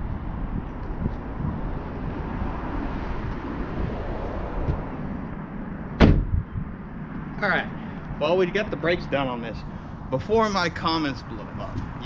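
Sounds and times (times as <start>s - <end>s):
low rumble: 4.1s - 6.9s
sharp knock: 6.0s - 6.4s.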